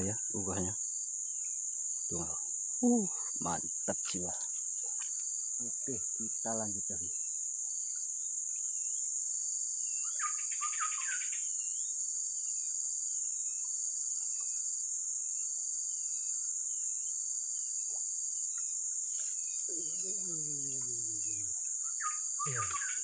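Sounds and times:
insects droning: 0:00.0 - 0:23.0
bird chattering call: 0:19.7 - 0:23.0
bird whistling dipping notes: 0:19.7 - 0:23.0.

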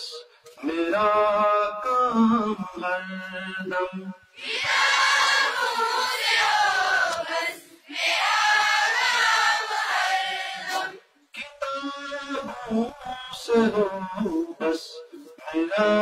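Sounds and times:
chorus singing a prayer: 0:00.0 - 0:16.0.

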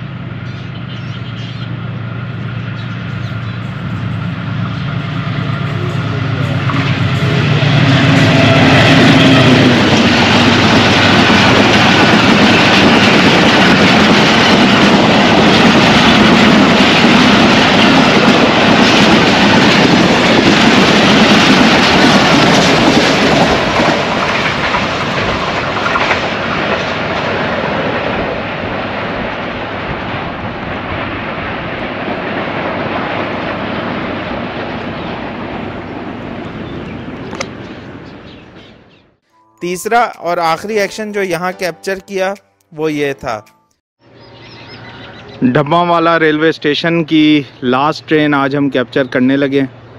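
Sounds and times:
train wheels rumbling on rails: 0:00.0 - 0:38.8.

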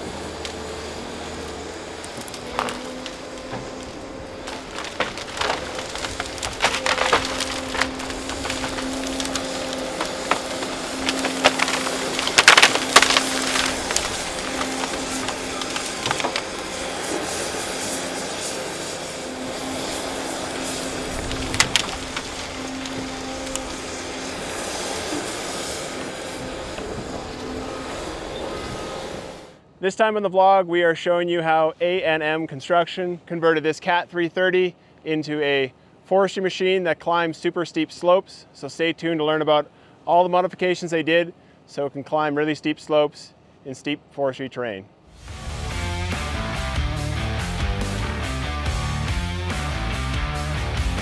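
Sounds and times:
excavator engine humming: 0:00.0 - 0:29.6
wood cracking and snapping: 0:01.2 - 0:18.2, 0:19.2 - 0:27.5.

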